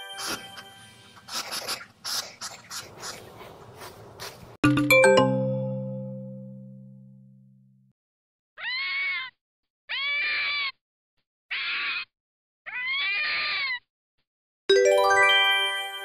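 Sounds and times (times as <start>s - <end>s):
bright ringing chime: 4.6s - 7.1s.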